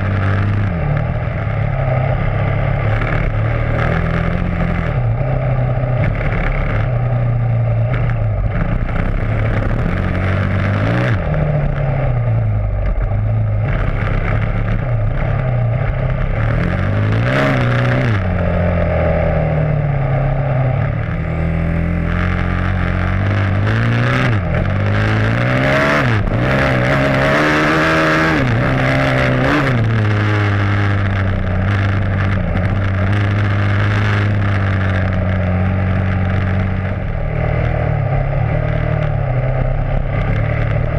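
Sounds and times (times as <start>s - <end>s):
dirt bike engine revving: 0.0s - 40.9s.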